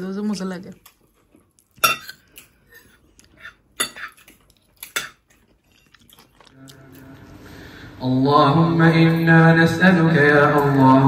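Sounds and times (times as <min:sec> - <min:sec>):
cutlery clinking against plates: 0:01.7 - 0:06.4.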